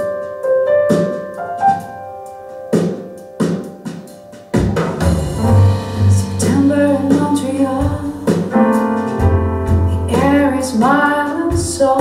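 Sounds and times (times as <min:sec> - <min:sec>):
song with piano and woman singing: 0:05.2 - 0:12.0.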